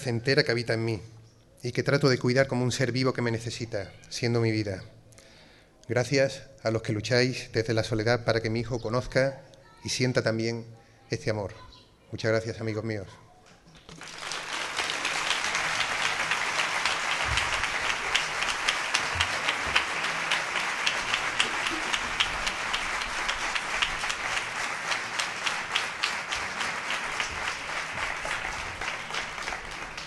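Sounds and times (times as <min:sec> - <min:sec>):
audience applauding: 0:13.9 - 0:30.0.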